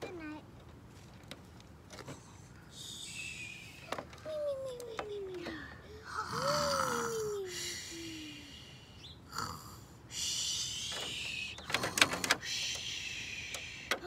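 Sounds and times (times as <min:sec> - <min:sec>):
child pretend snoring: 0:06.0 - 0:07.9, 0:09.3 - 0:09.9
plastic toys clicking: 0:10.9 - 0:14.0.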